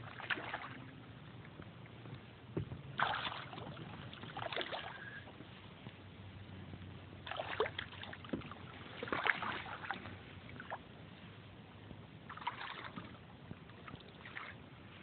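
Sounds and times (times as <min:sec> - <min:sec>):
fish splashing in water: 0:00.0 - 0:00.9, 0:03.0 - 0:05.3, 0:07.2 - 0:10.8, 0:12.3 - 0:13.2.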